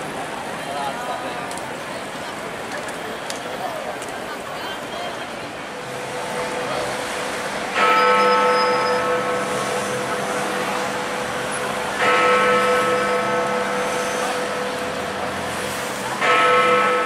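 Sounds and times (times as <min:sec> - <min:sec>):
traffic noise: 0:00.0 - 0:17.0
large clock bell striking: 0:05.8 - 0:17.0.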